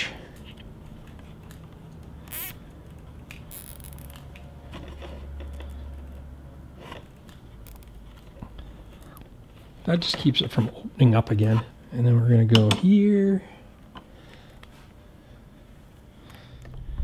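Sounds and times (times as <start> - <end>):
low steady hum: 0.0 - 17.0
hands rustling wiring: 0.3 - 10.7.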